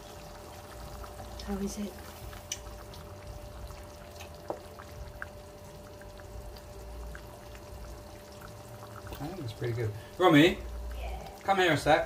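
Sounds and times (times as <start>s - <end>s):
sauce bubbling in a pan: 0.0s - 12.0s
steady low hum: 0.0s - 12.0s
small pops: 2.4s - 2.7s.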